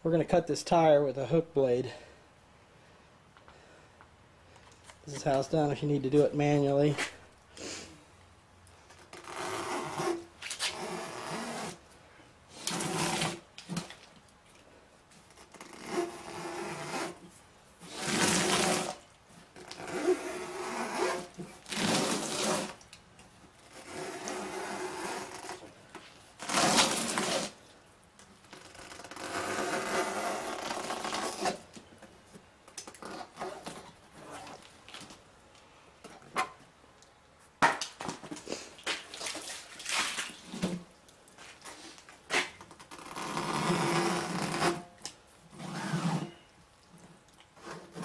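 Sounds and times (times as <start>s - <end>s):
blade cutting rubber tire: 15.4s - 17.2s, 17.8s - 19.0s, 19.6s - 22.8s, 23.7s - 25.6s, 26.4s - 27.6s, 28.9s - 31.6s, 45.6s - 46.3s.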